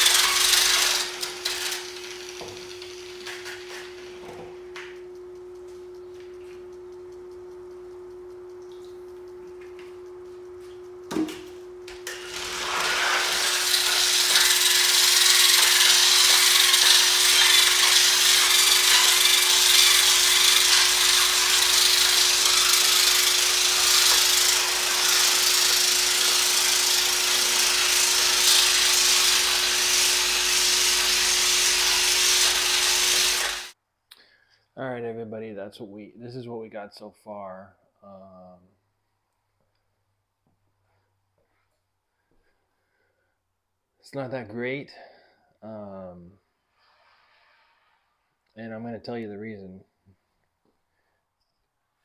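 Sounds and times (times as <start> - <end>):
polisher motor hum: 0.0 - 5.1, 9.7 - 33.8
gritty grinding on concrete: 12.1 - 21.6.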